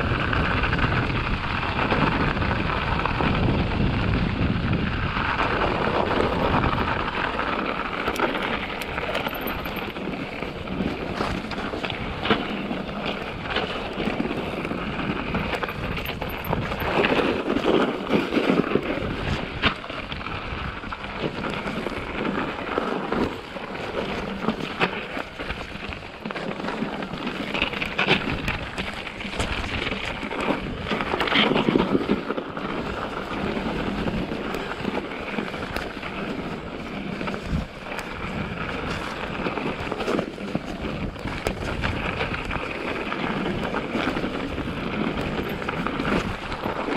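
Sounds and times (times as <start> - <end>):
bike tyres rumbling over snow: 0.0 - 46.9
wind on microphone: 0.0 - 46.9
bike knocks and rattles: 5.4 - 19.9.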